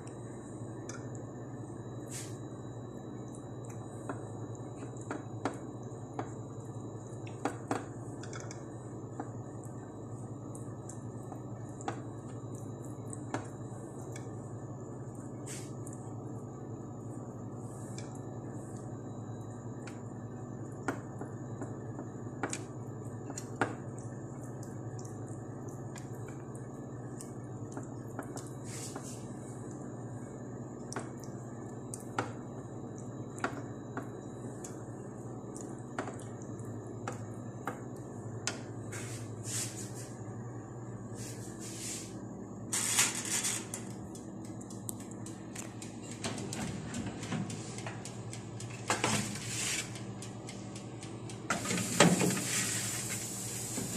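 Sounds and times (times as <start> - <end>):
steady low hum: 0.0 - 53.9
brush dabbing wet chicken: 38.9 - 40.1, 41.2 - 42.1.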